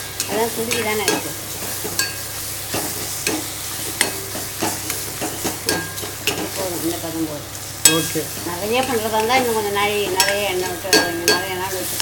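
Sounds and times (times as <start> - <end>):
spoon scraping metal pan: 0.0 - 6.6
soft sizzle: 0.0 - 12.0.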